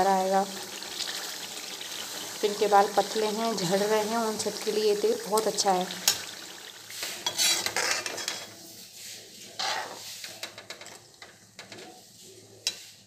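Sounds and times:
food sizzling in oil: 0.0 - 10.3
metal skimmer scraping pan: 6.9 - 8.6.

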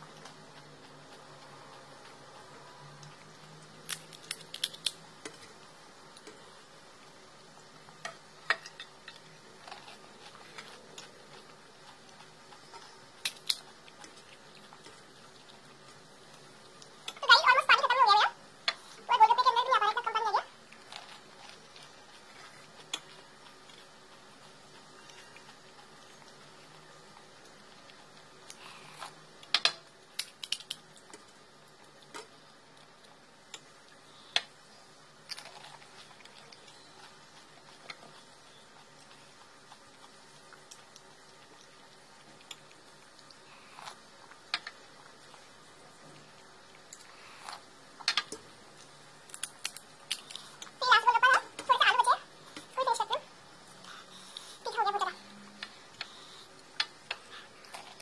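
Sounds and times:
crisp shells cracking: 3.8 - 5.0.

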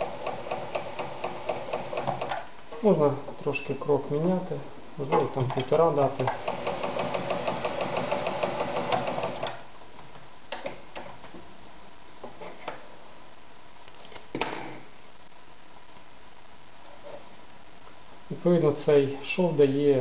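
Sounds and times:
sewing machine ticking: 0.0 - 2.4, 6.3 - 9.5.

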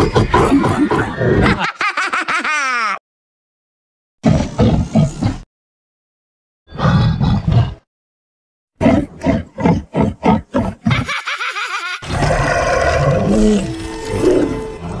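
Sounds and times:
cartoon villain evil laugh: 1.3 - 3.0, 10.8 - 12.1.

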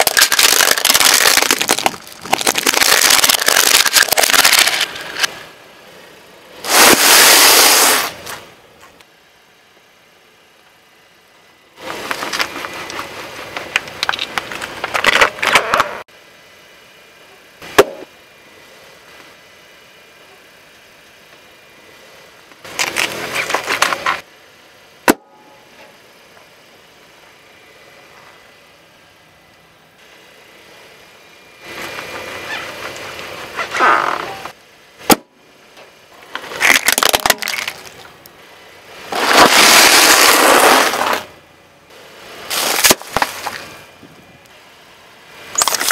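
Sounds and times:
tyre crunching plastic balls: 0.0 - 5.3, 36.4 - 38.0, 39.1 - 41.3, 42.5 - 43.6, 45.6 - 45.9.

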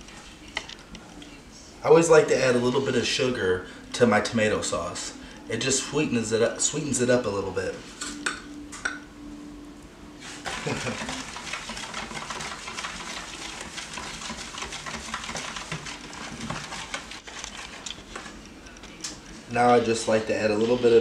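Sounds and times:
spoon scraping plastic tub: 10.4 - 18.4.

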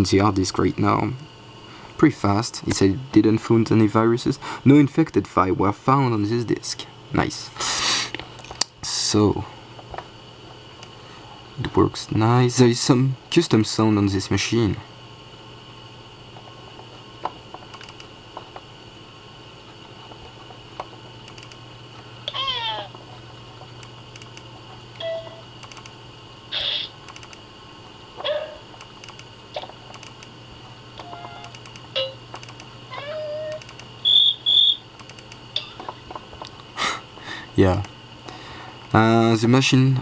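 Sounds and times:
soft clicks: 35.0 - 35.4.

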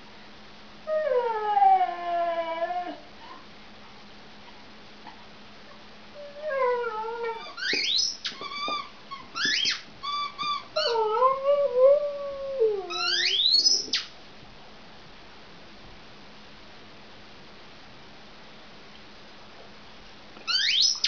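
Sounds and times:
dog howling and whining: 0.9 - 3.4, 6.2 - 14.0
dog high squeals: 6.2 - 11.4, 12.9 - 14.1, 20.5 - 21.0.

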